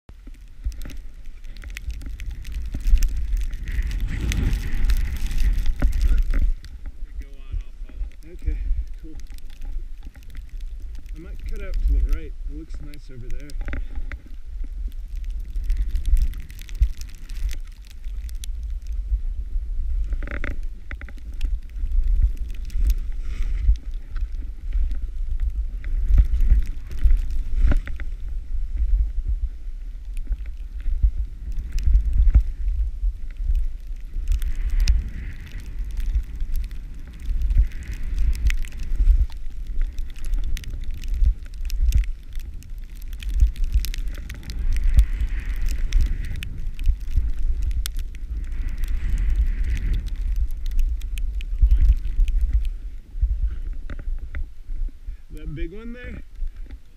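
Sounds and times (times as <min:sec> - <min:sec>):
wind rumble on microphone: 0:00.0 - 0:56.9
small clicks and knocks: 0:00.2 - 0:07.0, 0:07.9 - 0:19.0, 0:20.0 - 0:28.2
skis hissing through snow: 0:03.1 - 0:06.7, 0:22.7 - 0:23.7, 0:48.2 - 0:50.4.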